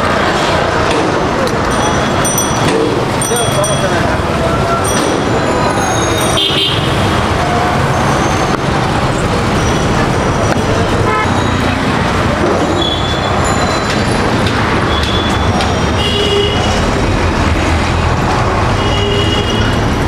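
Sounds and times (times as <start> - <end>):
road traffic noise: 0.0 - 20.0
car horn toots: 6.2 - 7.1, 11.0 - 11.6, 14.9 - 16.8.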